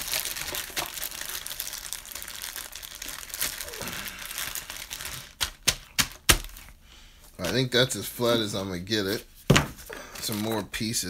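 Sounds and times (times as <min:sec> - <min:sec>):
plastic bags crinkling: 0:00.0 - 0:06.8.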